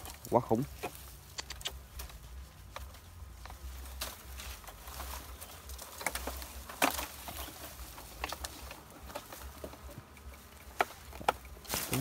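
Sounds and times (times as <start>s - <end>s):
short clicks: 1.3s - 1.8s.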